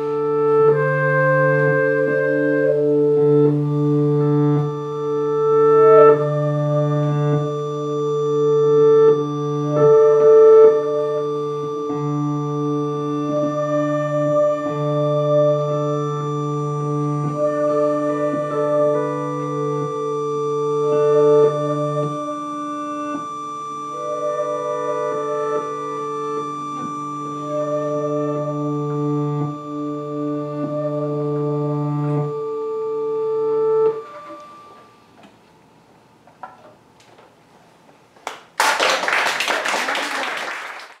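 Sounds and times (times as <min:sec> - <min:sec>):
accordion holding a chord: 0:00.0 - 0:35.0
long held notes: 0:00.0 - 0:36.8
audience applause: 0:38.2 - 0:41.0.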